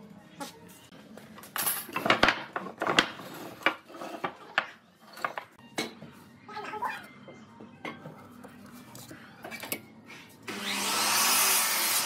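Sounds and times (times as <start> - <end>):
wooden pieces knocking on workbench: 1.9 - 6.0.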